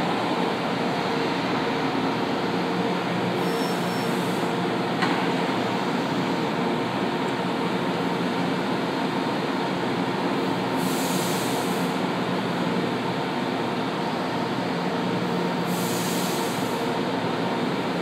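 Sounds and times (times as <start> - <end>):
air hiss bursts: 10.8 - 12.0, 15.7 - 16.8.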